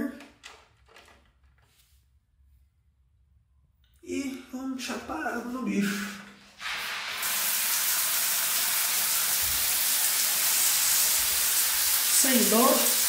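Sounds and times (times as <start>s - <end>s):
water spraying hiss: 5.9s - 13.0s.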